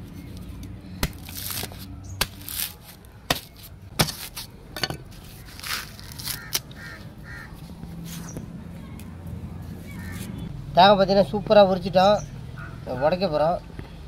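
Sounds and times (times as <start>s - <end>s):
blade chopping coconut husk: 1.0s - 4.5s
rasp of fibre tearing: 1.0s - 4.5s, 5.1s - 6.7s.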